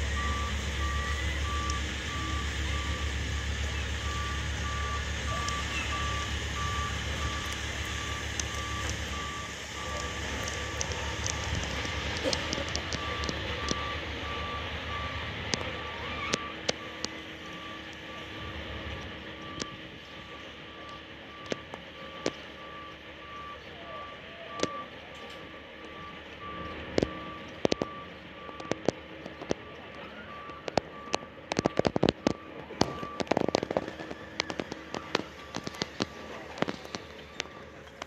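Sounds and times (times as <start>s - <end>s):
high warning beeps: 0.0s - 38.0s
sharp clicks: 26.6s - 38.0s.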